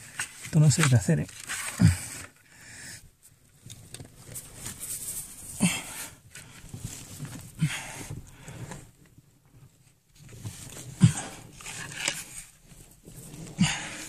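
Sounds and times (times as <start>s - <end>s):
person breathing hard with grunts: 1.6s - 3.0s, 5.4s - 6.6s, 7.5s - 8.8s, 10.8s - 11.6s, 13.4s - 14.0s.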